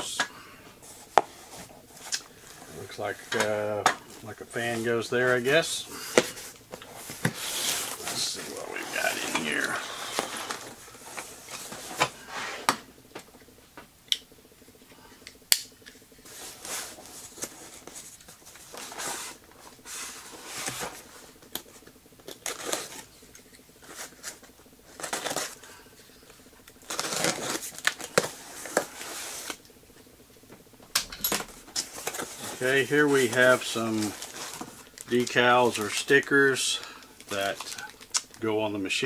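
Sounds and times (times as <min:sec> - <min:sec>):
cardboard scraping and rustling: 0:04.5 - 0:12.8, 0:16.3 - 0:21.3, 0:26.8 - 0:29.6, 0:31.4 - 0:35.9.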